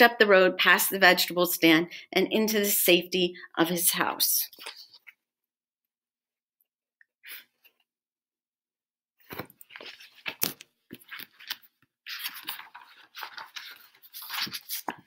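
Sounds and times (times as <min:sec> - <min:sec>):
rustling and clicks of handled objects: 0:09.2 - 0:15.0.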